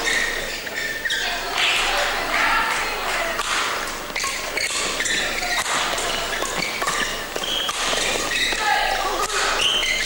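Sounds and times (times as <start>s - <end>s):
shoe squeaks on court: 0.0s - 1.4s, 4.1s - 8.7s, 9.3s - 10.0s
murmur of spectators: 0.0s - 10.0s
racket hitting shuttlecock: 3.4s - 8.6s, 9.2s - 10.0s.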